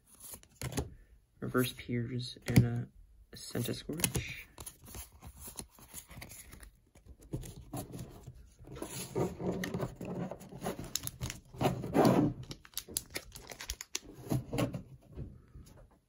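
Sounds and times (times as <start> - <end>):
cards rubbing and scraping: 3.6 - 14.1.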